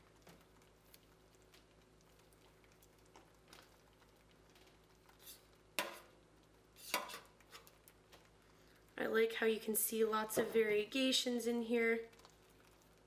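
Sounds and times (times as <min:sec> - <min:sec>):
spoon squishing wet yarn: 0:00.0 - 0:08.4, 0:12.0 - 0:13.0.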